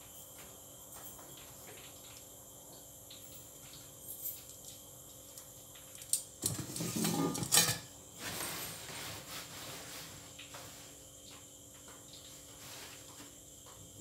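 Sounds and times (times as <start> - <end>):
metal tongs and bowl clattering: 6.4 - 7.9.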